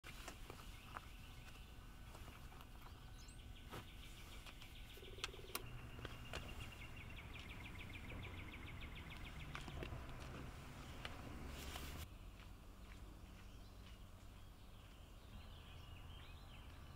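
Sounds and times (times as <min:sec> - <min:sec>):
bird trilling chirps: 0:02.8 - 0:09.8.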